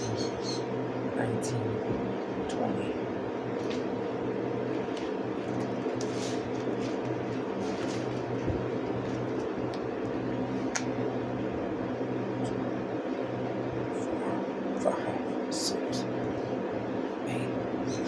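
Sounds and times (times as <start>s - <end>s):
steady mechanical hum: 0.0s - 18.0s
resistance bands rustling: 4.7s - 9.6s.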